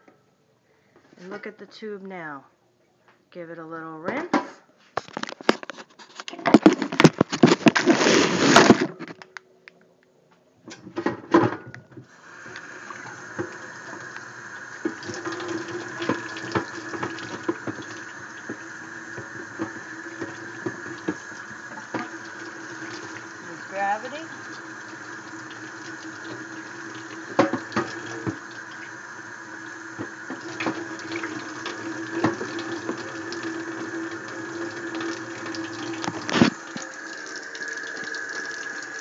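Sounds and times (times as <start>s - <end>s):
tap water running into sink: 12.2s - 39.0s
hose knocking against sink: 14.8s - 23.0s, 27.2s - 28.5s, 30.0s - 33.4s.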